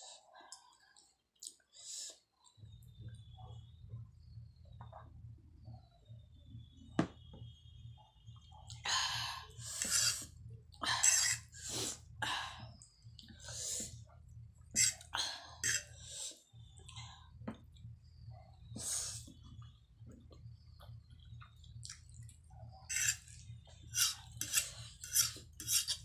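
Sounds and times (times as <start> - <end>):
fork on plate: 22.9 - 23.3, 23.9 - 26.0.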